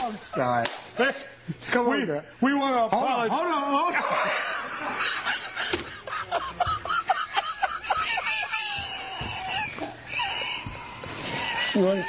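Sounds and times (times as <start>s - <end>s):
people laughing: 3.8s - 12.0s.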